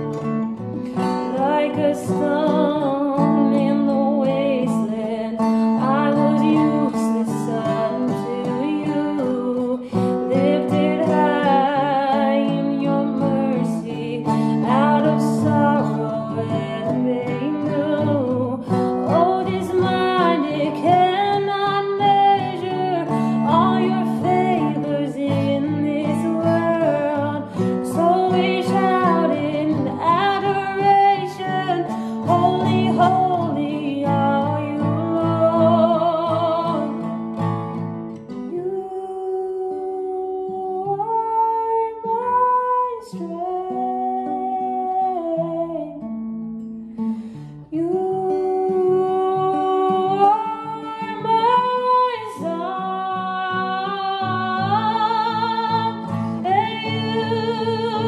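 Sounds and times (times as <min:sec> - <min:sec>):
acoustic guitar strumming: 0:00.0 - 0:39.0, 0:40.0 - 0:58.0
woman singing: 0:00.0 - 0:58.0.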